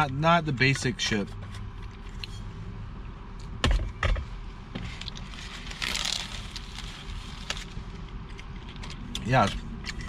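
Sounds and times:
paper wrapper crinkling: 0:05.1 - 0:07.8.

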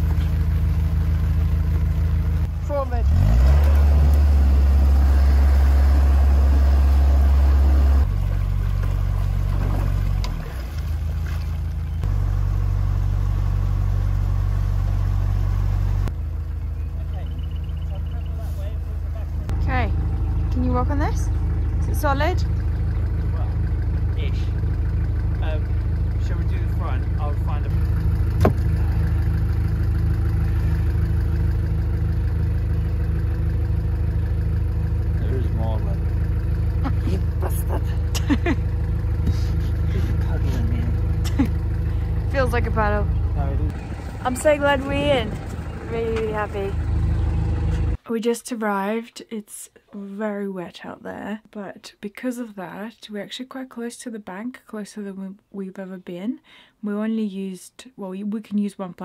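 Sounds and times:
boat engine humming: 0:00.0 - 0:48.0.

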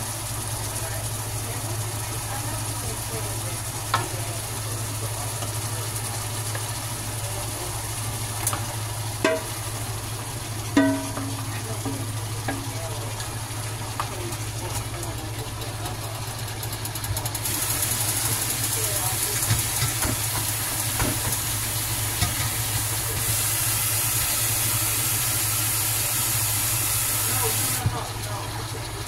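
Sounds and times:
utensil clinking against metal pot: 0:08.4 - 0:09.8, 0:10.7 - 0:17.5, 0:18.8 - 0:23.3.

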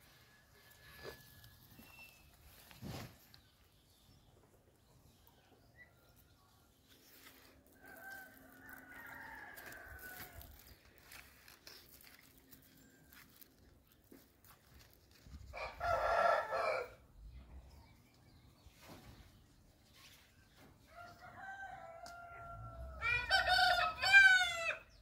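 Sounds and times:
rooster crowing: 0:15.5 - 0:17.0, 0:21.0 - 0:24.8.

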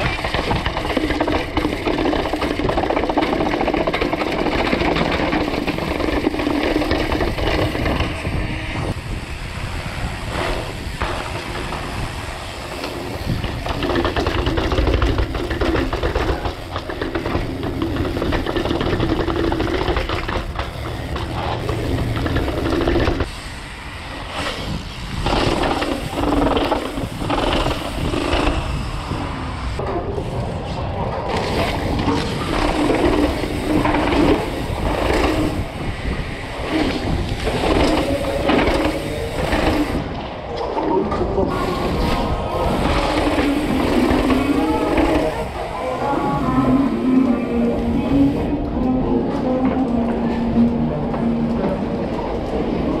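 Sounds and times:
bike rattling over bumps: 0:00.0 - 0:47.1
bike tyres rolling over rocks: 0:00.0 - 0:48.4.

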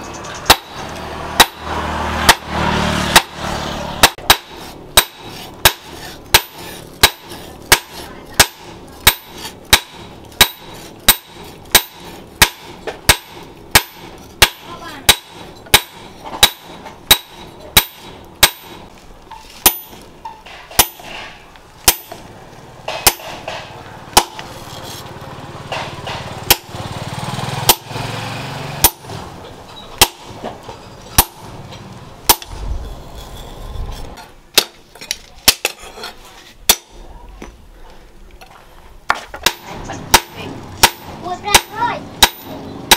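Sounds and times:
hammer striking metal on anvil: 0:00.5 - 0:18.9, 0:19.6 - 0:22.2, 0:22.9 - 0:24.4, 0:25.7 - 0:26.7, 0:28.8 - 0:29.1, 0:32.3 - 0:32.6, 0:39.4 - 0:42.9.

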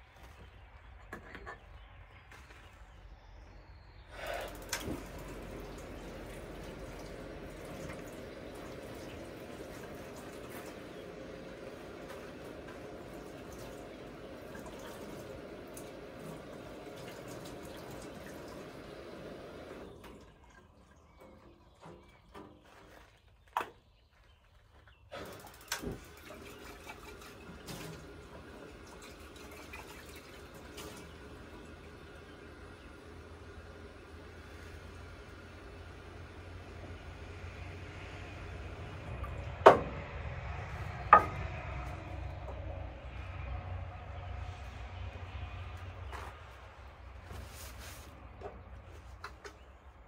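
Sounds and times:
water running: 0:04.2 - 0:21.1, 0:25.2 - 0:39.8.

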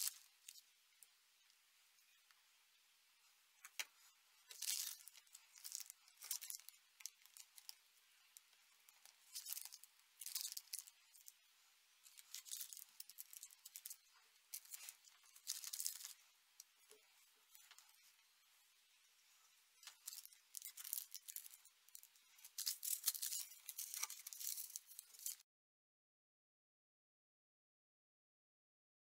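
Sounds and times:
plastic bags crinkling: 0:03.6 - 0:07.8, 0:08.9 - 0:11.3, 0:12.0 - 0:16.2, 0:19.8 - 0:25.4.

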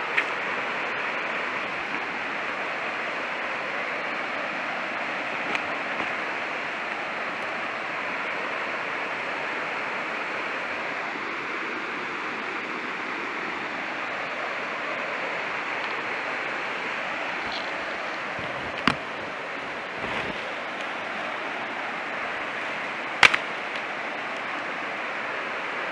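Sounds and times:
waterfall rushing: 0:00.0 - 0:25.9.

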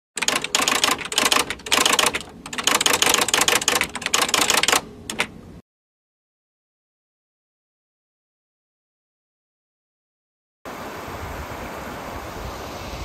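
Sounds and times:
typewriter key clicks: 0:00.2 - 0:05.3.

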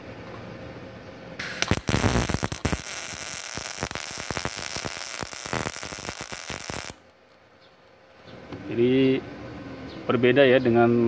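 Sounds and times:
welding arc hissing and crackling: 0:01.4 - 0:07.1.

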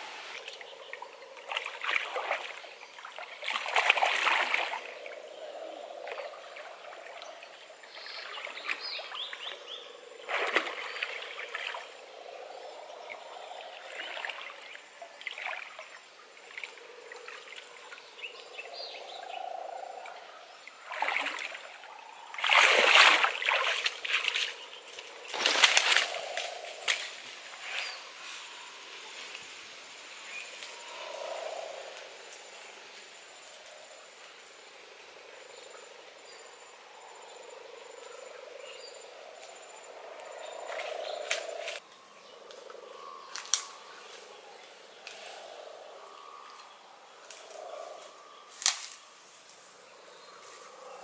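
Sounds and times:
water splashing and sloshing: 0:00.0 - 0:18.2, 0:20.0 - 0:29.5.

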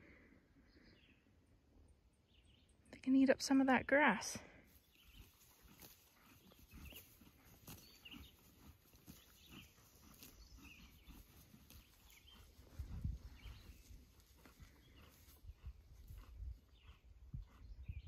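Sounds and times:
horse chewing grass: 0:04.7 - 0:18.0.

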